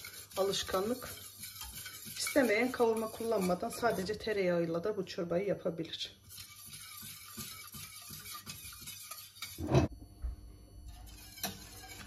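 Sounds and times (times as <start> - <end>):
whisk swishing in a pot: 0.0 - 9.9, 10.9 - 12.0.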